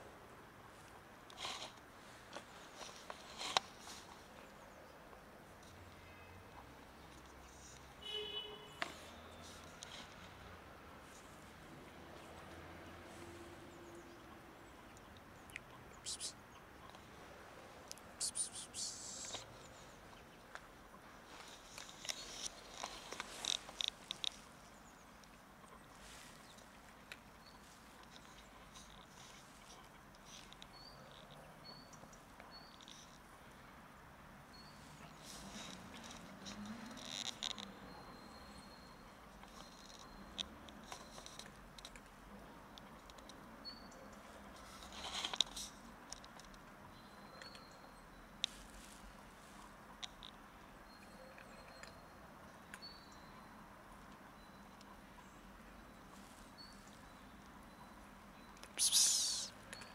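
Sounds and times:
short high chirps: 58.8s - 59.5s.

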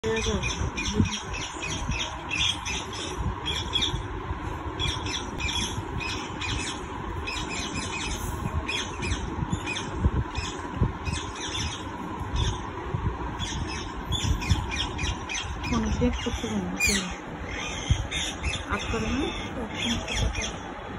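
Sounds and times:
steady low rumble: 0.0s - 20.9s
parrots squawking: 13.4s - 20.7s.

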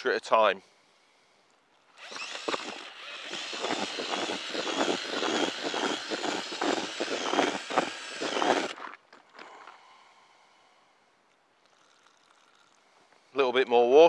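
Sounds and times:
cordless drill motor whirr: 1.9s - 9.6s
whisk rattling through groundbait: 11.7s - 12.8s.

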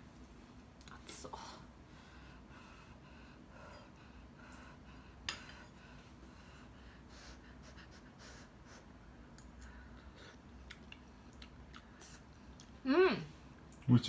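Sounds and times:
soft breathing: 1.3s - 12.6s.

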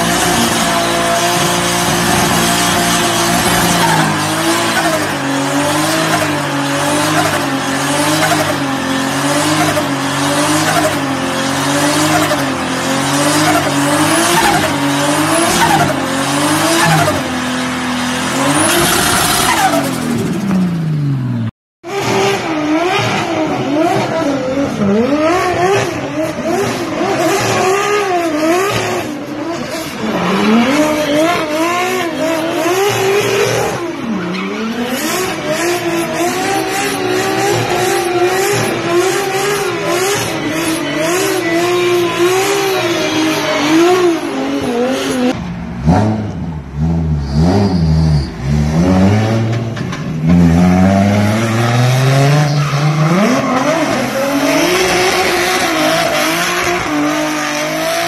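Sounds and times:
drift car engines revving: 0.0s - 58.0s
tyre squeal: 13.4s - 17.4s, 47.1s - 48.6s, 52.2s - 57.6s.

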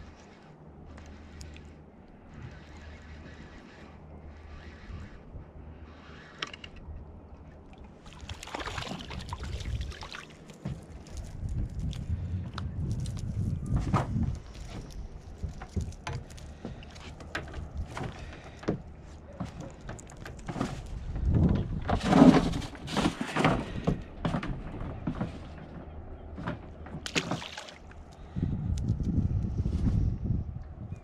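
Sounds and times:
knocks and clatter on a boat: 10.6s - 28.1s.

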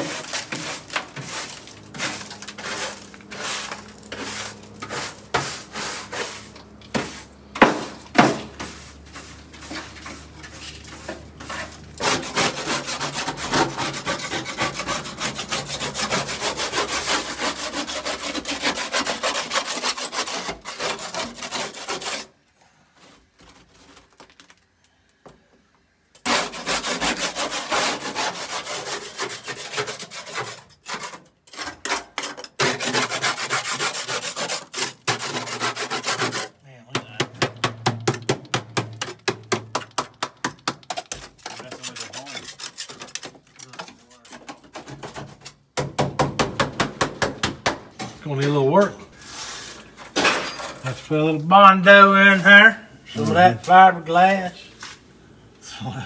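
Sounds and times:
scrubbing on metal floor: 0.0s - 22.3s, 26.2s - 36.6s, 40.9s - 45.4s.

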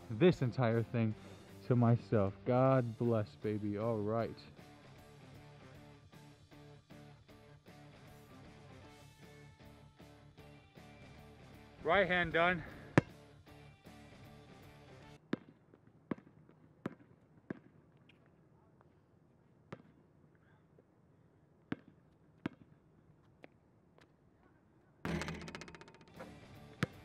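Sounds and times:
music: 0.0s - 15.2s, 25.1s - 27.0s
basketball bouncing on court: 12.9s - 13.2s, 15.2s - 17.8s, 19.7s - 20.0s, 21.7s - 22.8s, 25.1s - 27.0s.

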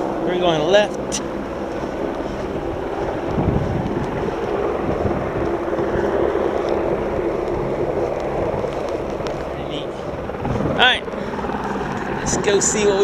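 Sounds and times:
helicopter drone: 0.0s - 13.0s
wind on microphone: 0.0s - 13.0s.

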